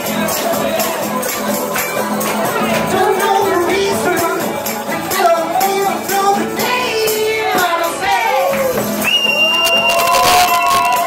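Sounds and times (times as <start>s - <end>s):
acoustic guitar: 0.0s - 11.0s
frame drum beats: 1.6s - 8.2s
person singing: 2.2s - 8.7s.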